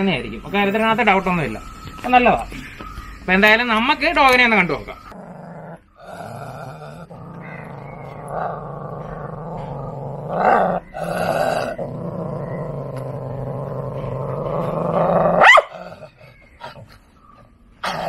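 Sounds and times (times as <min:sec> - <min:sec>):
dog growling and snarling: 0:05.1 - 0:16.8, 0:17.8 - 0:18.0.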